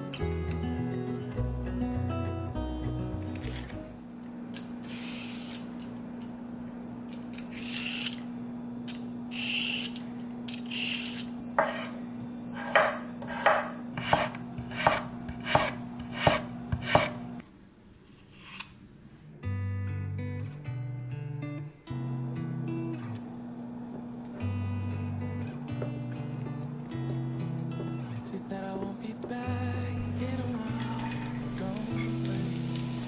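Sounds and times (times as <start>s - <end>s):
knife chopping on cutting board: 11.6s - 12.0s, 12.6s - 17.2s.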